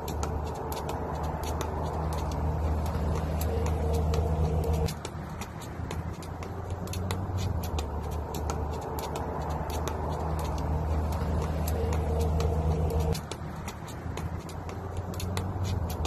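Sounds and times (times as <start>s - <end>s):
skipping rope slapping ground: 0.0s - 16.0s
steady low hum: 1.9s - 4.9s.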